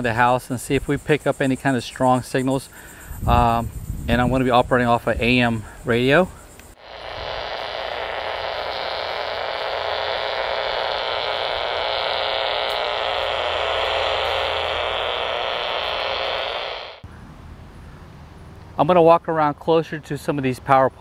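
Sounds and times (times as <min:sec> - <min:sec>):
radio static buzz: 0:06.8 - 0:17.1.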